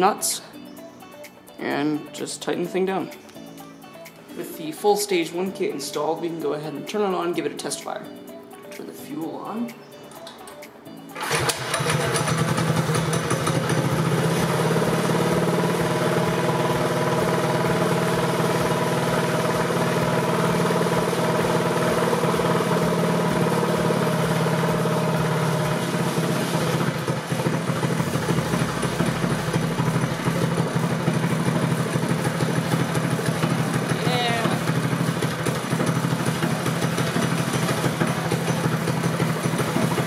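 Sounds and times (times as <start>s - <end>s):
small engine running at high revs: 11.2s - 40.0s.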